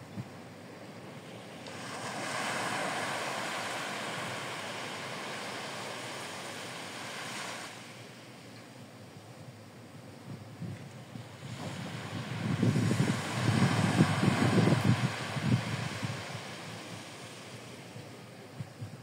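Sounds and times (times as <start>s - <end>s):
wave breaking on sandy beach: 1.2s - 8.4s, 11.0s - 18.6s.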